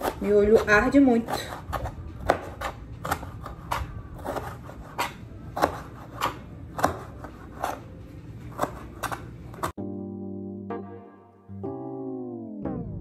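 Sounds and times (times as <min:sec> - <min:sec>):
knife chopping on a cutting board: 0:00.0 - 0:07.9, 0:08.5 - 0:09.8.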